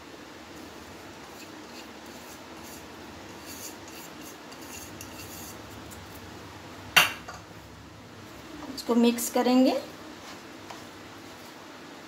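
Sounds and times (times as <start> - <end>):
faint rubbing and scraping: 1.2 - 5.9.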